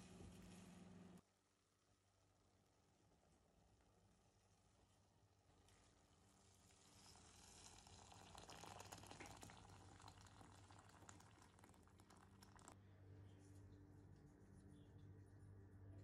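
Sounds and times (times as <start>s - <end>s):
water pouring into a pot: 6.2s - 12.8s.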